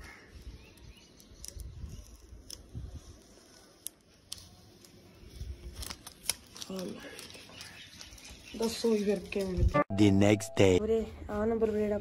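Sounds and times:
light rustling of tape: 0:00.3 - 0:09.8.

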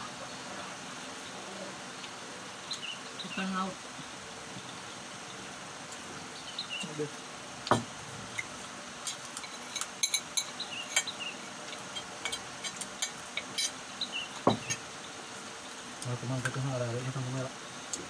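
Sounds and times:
sharp knocks on tableware: 0:07.7 - 0:07.9, 0:14.4 - 0:14.8
tableware clinking and scraping: 0:07.7 - 0:13.8, 0:14.4 - 0:14.8.

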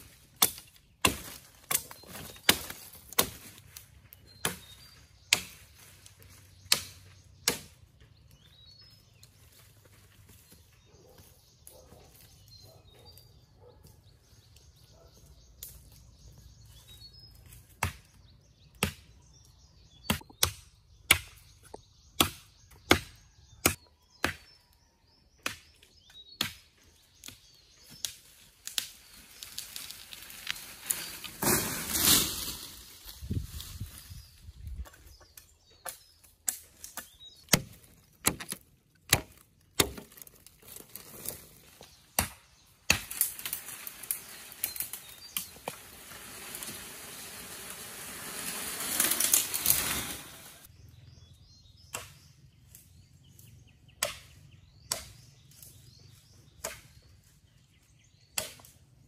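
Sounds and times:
machete chopping saplings: 0:00.0 - 0:08.1, 0:17.6 - 0:19.2, 0:20.0 - 0:29.0, 0:34.9 - 0:50.6, 0:51.8 - 0:57.2, 0:58.2 - 0:58.8
crash of falling sapling: 0:29.6 - 0:32.9, 0:48.2 - 0:50.6.

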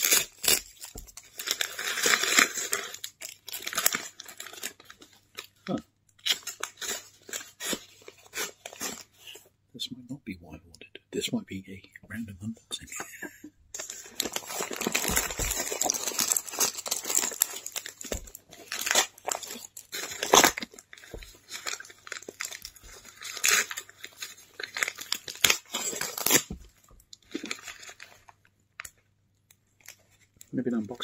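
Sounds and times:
paper and plastic wrapping tearing: 0:00.0 - 0:09.4, 0:13.8 - 0:29.0.

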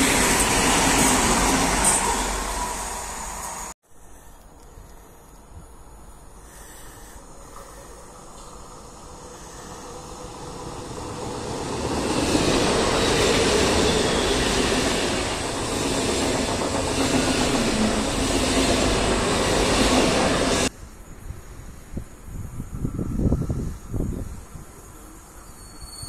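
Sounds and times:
high-speed train passing: 0:00.0 - 0:03.8, 0:07.2 - 0:20.7.

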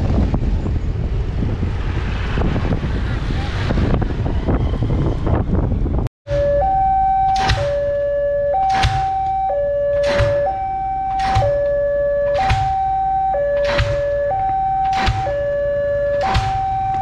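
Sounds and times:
level-crossing alarm tones: 0:06.3 - 0:17.0.

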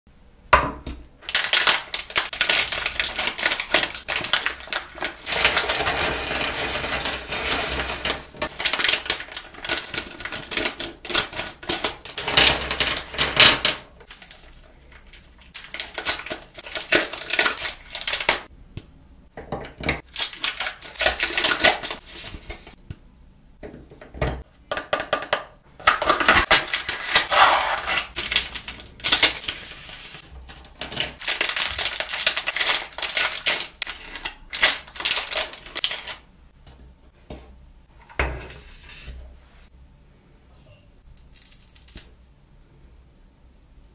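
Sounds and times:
hard candies clicking and rattling: 0:01.2 - 0:18.5, 0:20.0 - 0:22.0, 0:24.7 - 0:29.6, 0:30.4 - 0:36.2
plastic wrappers crinkling and tearing: 0:01.2 - 0:18.5, 0:20.0 - 0:22.7, 0:25.8 - 0:36.3.

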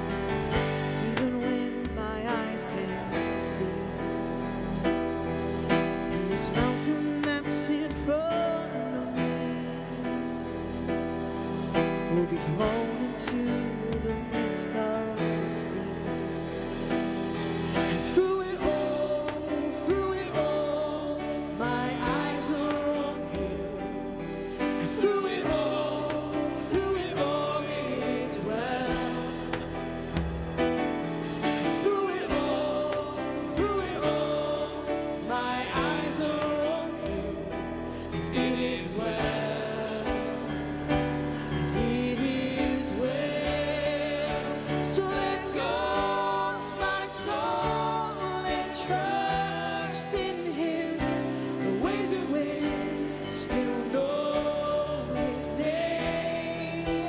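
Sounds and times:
worship band playing: 0:00.0 - 0:57.0
women singing into microphones: 0:41.8 - 0:57.0.

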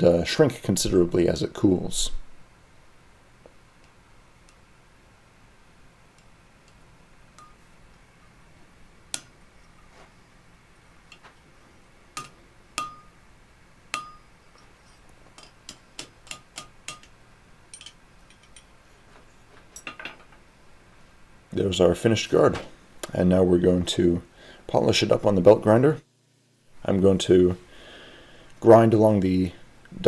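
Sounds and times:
hammer striking steel on anvil: 0:07.4 - 0:07.6, 0:12.2 - 0:13.2, 0:13.9 - 0:14.3, 0:15.4 - 0:18.7.

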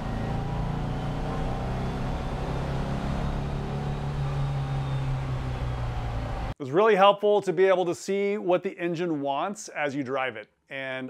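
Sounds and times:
car engine running from inside: 0:00.0 - 0:06.6.

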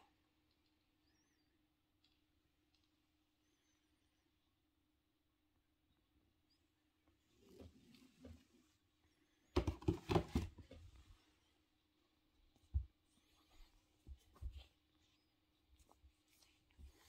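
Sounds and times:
kitten scuffling on a mattress: 0:12.6 - 0:17.0.

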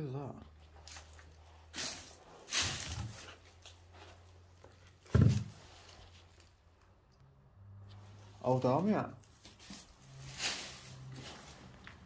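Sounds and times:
handling rustles: 0:00.6 - 0:06.6, 0:09.2 - 0:12.0.

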